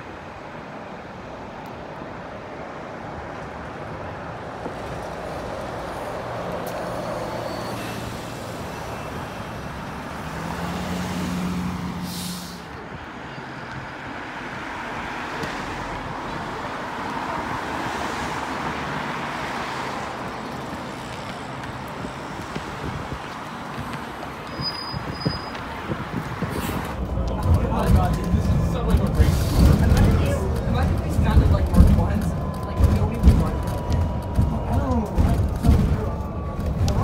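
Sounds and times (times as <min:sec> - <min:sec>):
cars passing: 0:00.0 - 0:37.0
electric bus humming past: 0:00.8 - 0:22.4
short hiss: 0:12.0 - 0:12.7.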